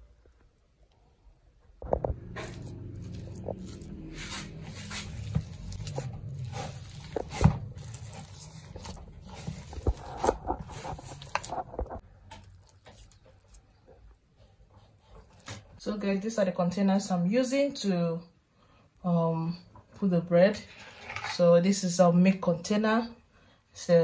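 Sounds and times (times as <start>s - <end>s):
hands kneading dough squishes: 1.8s - 15.9s.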